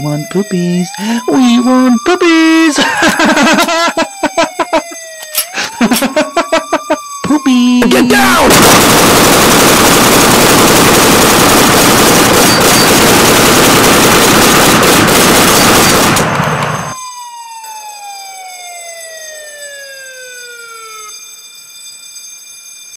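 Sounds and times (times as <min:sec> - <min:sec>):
tone gliding downward: 0:00.0 - 0:08.5, 0:16.7 - 0:22.6
siren: 0:00.0 - 0:22.9
distorted rapid gunfire: 0:06.1 - 0:17.0.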